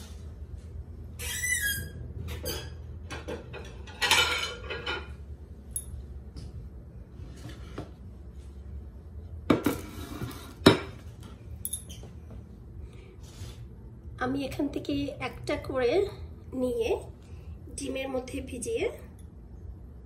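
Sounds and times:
dishes and cutlery clinking: 2.3 - 5.2.

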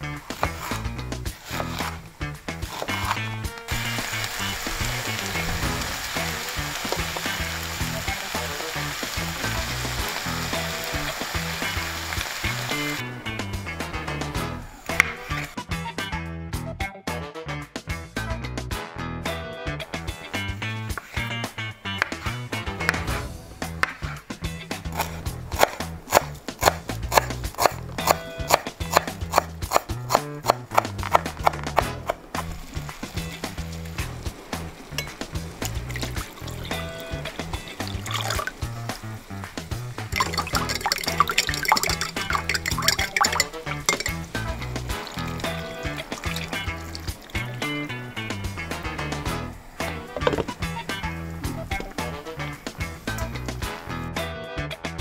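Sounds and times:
background music with bass: 0.0 - 55.0
food sizzling in a frying pan: 3.6 - 13.0, 32.4 - 53.8
knife chopping on cutting board: 25.0 - 31.6.

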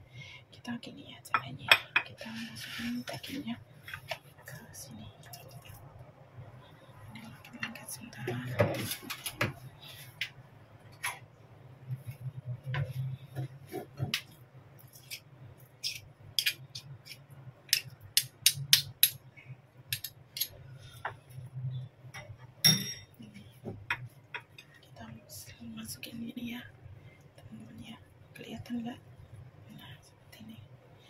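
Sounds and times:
low steady hum: 0.0 - 31.0
spoon clinking ceramic bowl: 22.6 - 23.2.

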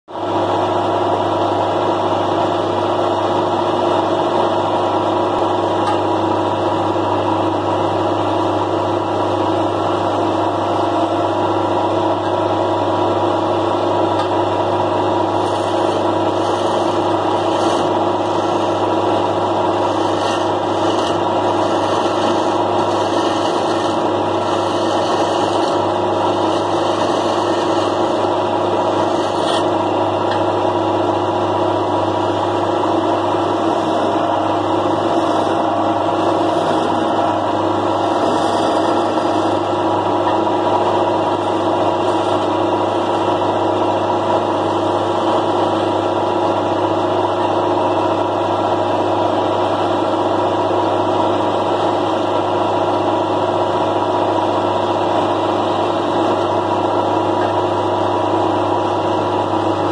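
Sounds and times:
wood lathe motor hum: 1.6 - 59.9
chisel cutting wood hiss: 15.3 - 18.8, 19.8 - 28.3, 34.8 - 39.7.

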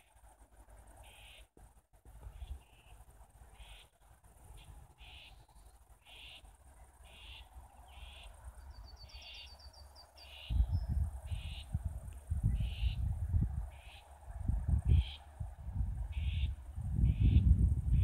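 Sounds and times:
wind buffeting microphone: 10.4 - 18.0.

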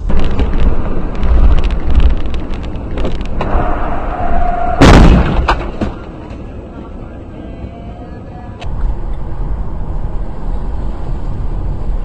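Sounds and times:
car road and engine rumble: 0.0 - 12.0
loud bang: 3.4 - 6.2
knocks from the road: 4.7 - 6.1.

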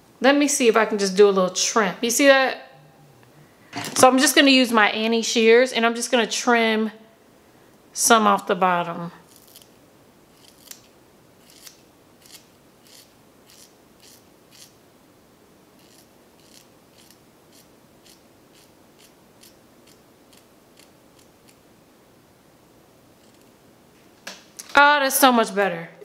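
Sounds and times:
shears snipping hair: 9.3 - 9.7, 10.3 - 14.8, 15.8 - 21.6.

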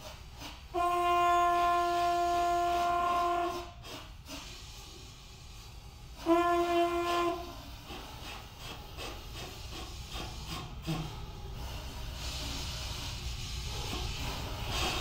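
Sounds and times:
conch shell trumpets blown: 0.7 - 3.8, 6.2 - 7.6.

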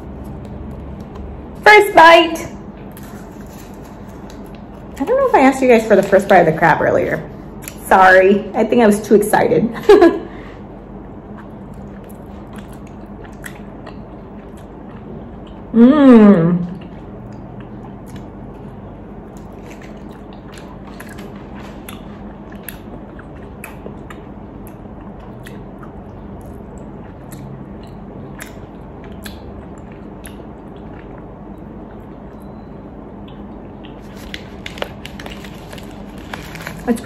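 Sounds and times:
steady low hum: 0.0 - 37.0
person chewing: 11.3 - 15.8, 16.6 - 32.5, 33.2 - 36.9.

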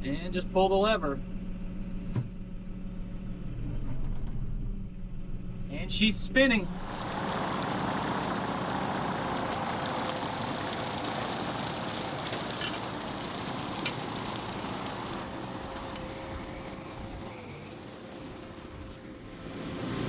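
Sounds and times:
tractor diesel engine: 5.1 - 20.0
rotary cutter mowing: 6.6 - 20.0.

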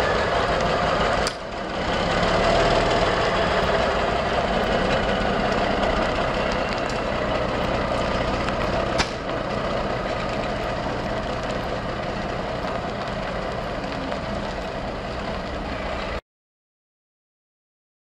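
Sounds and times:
diesel truck engine running: 0.0 - 16.2.

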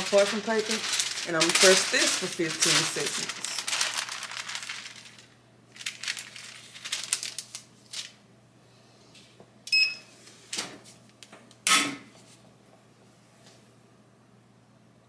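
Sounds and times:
paper rustling and crinkling: 0.0 - 8.2.

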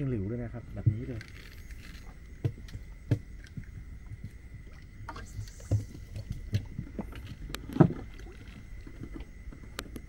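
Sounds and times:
soft knocks on wooden boat: 2.4 - 3.7.

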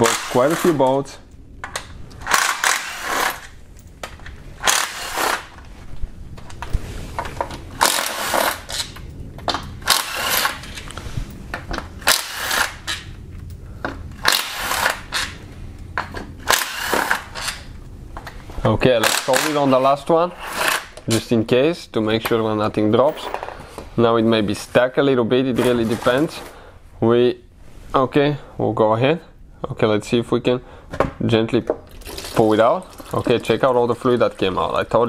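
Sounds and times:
cordless power tool spinning bolts: 0.0 - 0.8, 2.2 - 3.5, 4.6 - 5.6, 7.8 - 9.0, 9.8 - 10.8, 12.0 - 13.0, 14.2 - 15.3, 16.5 - 17.6.

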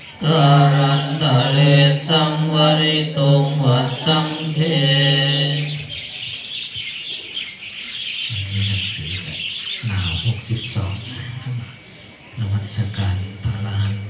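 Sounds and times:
group chanting in monotone: 0.0 - 6.4
birds chirping: 0.0 - 14.0
low murmuring voices: 0.0 - 14.0.

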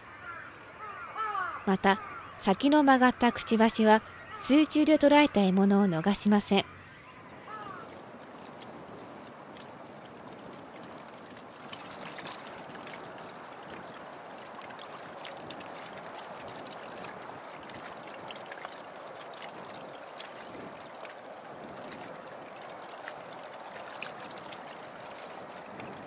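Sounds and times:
river water lapping: 0.0 - 26.0
small water splashes: 6.6 - 26.0.

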